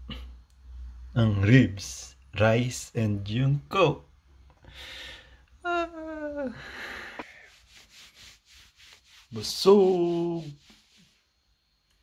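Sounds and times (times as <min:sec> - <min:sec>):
man breathing: 0:04.6 - 0:05.6, 0:06.5 - 0:07.6
man sighing: 0:04.7 - 0:07.4.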